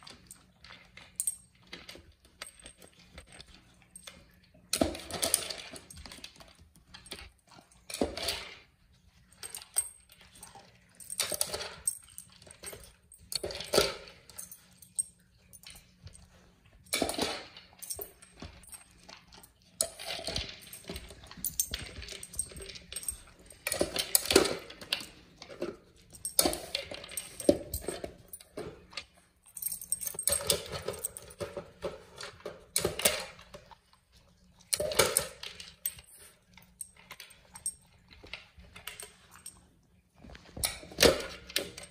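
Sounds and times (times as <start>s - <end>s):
kibble rattling inside: 0.0s - 33.8s.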